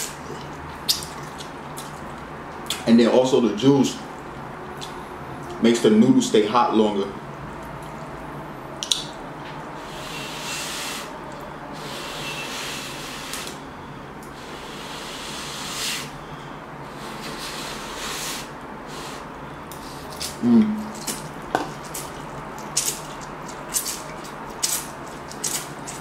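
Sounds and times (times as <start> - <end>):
slurping noodles: 9.8 - 11.1, 11.8 - 13.6, 14.4 - 16.2, 16.9 - 20.4.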